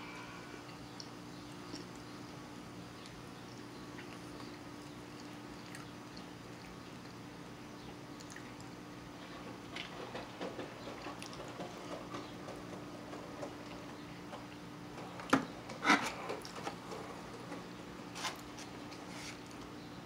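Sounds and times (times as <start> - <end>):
low steady hum: 0.0 - 20.0
chewing noises: 3.0 - 7.3, 8.1 - 8.8.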